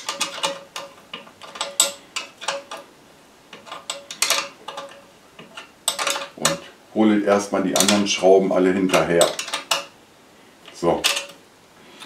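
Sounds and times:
spanner clinking on metal nut: 0.0s - 2.8s, 3.5s - 6.6s, 8.9s - 9.9s, 11.0s - 11.4s.

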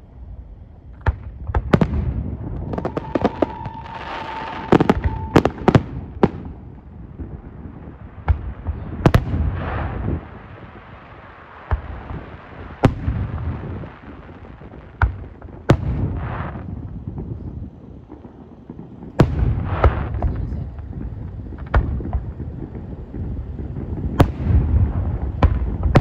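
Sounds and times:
fireworks crackling: 0.0s - 26.0s
rumbling echoes: 0.0s - 26.0s
fireworks bangs: 0.8s - 26.0s
high whistle: 2.7s - 5.7s.

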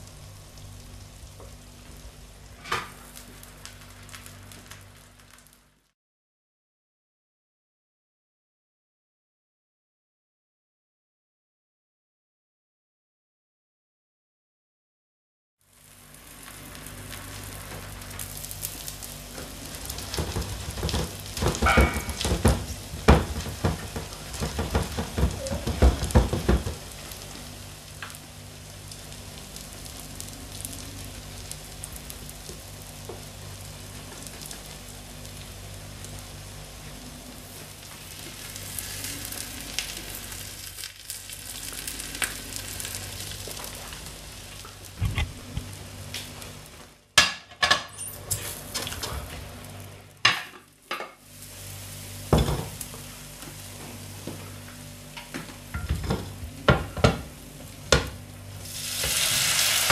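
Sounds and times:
food sizzling in a frying pan: 0.0s - 5.9s, 15.6s - 59.9s
utensil knocking and scraping pan: 20.2s - 26.8s.

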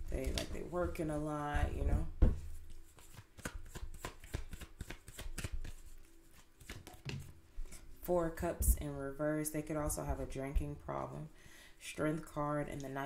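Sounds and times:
cards being shuffled: 2.6s - 7.3s.

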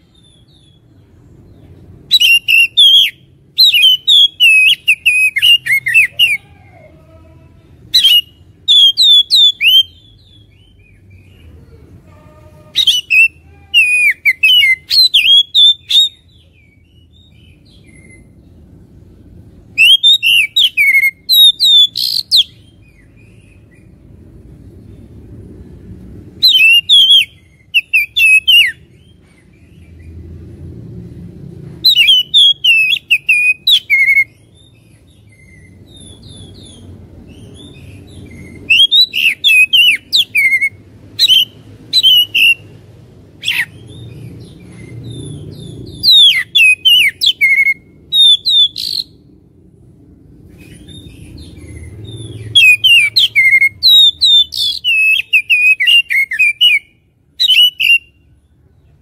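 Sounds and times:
low background rumble: 0.0s - 59.0s
bird singing whistled phrases: 2.1s - 6.4s, 8.0s - 10.9s, 12.8s - 18.3s, 19.8s - 23.4s, 26.4s - 28.8s, 31.8s - 34.4s, 38.4s - 42.6s, 45.9s - 49.2s, 52.4s - 58.2s.

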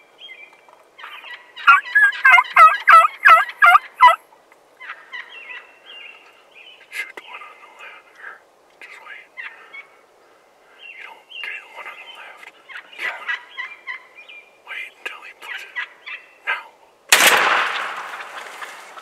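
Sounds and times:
turkeys gobbling: 1.0s - 4.2s, 4.8s - 6.4s, 9.4s - 10.0s, 12.5s - 14.2s, 15.4s - 16.6s, 17.7s - 19.0s
shotgun blast: 17.1s - 18.4s.

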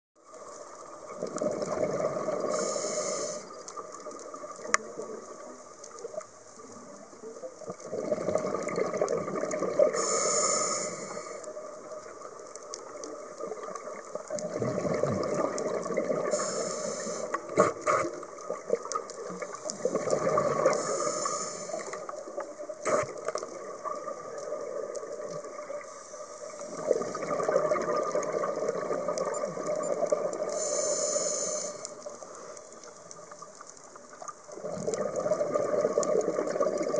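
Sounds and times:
gurgling exhaled bubbles: 1.0s - 5.4s, 6.8s - 10.4s, 11.8s - 30.7s, 34.5s - 36.9s
regulator hissing inhalations: 2.4s - 3.6s, 9.9s - 11.5s, 16.3s - 18.2s, 19.7s - 22.1s, 30.5s - 32.6s.

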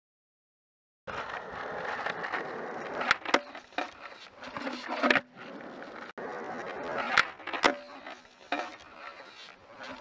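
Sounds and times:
skateboard clacks: 1.1s - 10.0s
skateboard wheels rolling on concrete: 1.1s - 10.0s.

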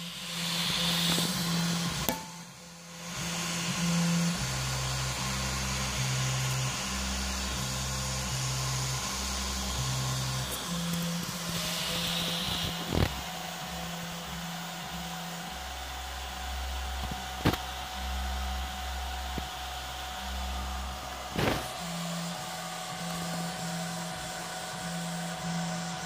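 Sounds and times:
faint high whine: 0.0s - 26.0s
stepper motors humming and whining: 0.0s - 26.0s.

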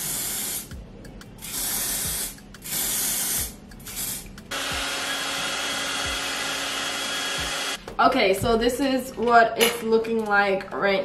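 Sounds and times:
aerosol spray hissing: 0.0s - 0.7s, 1.4s - 4.3s
hair dryer running: 4.5s - 7.8s.

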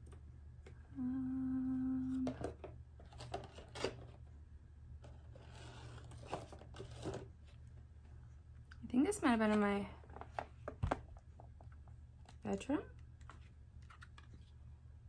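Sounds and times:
woman humming: 0.8s - 2.5s.

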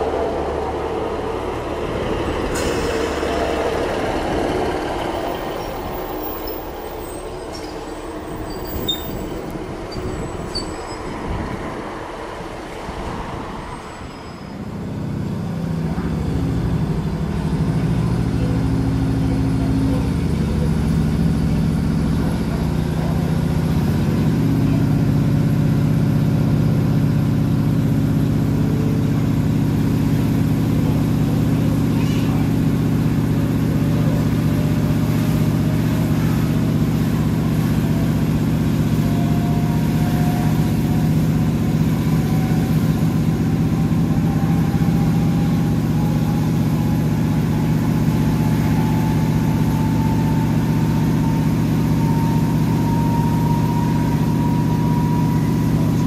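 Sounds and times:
train diesel engine drone: 0.0s - 56.0s
train wheels rumbling: 0.0s - 56.0s
faint high wheel squeals: 5.2s - 11.3s, 13.6s - 14.9s.

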